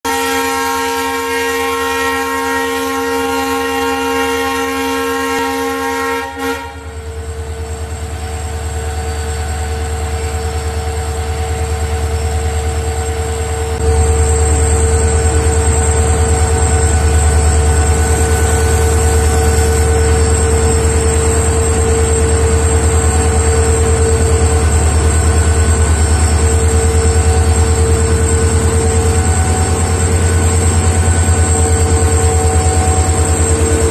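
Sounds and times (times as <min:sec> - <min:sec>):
locomotive horn: 0:00.1 - 0:07.1
locomotive engine humming: 0:00.1 - 0:33.9.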